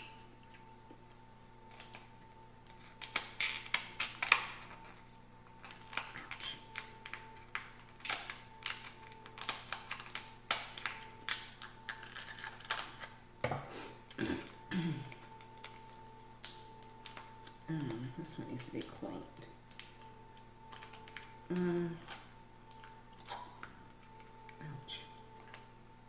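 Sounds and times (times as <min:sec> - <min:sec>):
low hum: 0:00.0 - 0:26.0
seafood shells cracking: 0:02.8 - 0:04.8, 0:05.5 - 0:13.1, 0:19.6 - 0:21.4.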